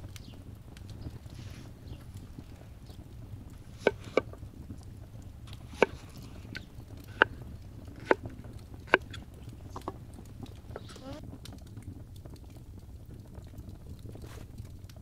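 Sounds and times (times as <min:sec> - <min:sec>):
knife chopping on wooden board: 0:03.8 - 0:04.3, 0:05.7 - 0:06.1, 0:08.0 - 0:08.3.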